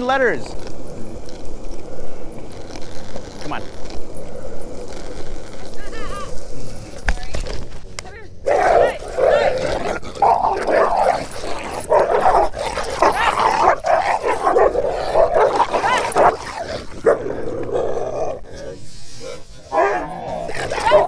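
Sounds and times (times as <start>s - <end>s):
dogs whining yipping and barking: 8.5s - 17.2s, 19.7s - 21.0s.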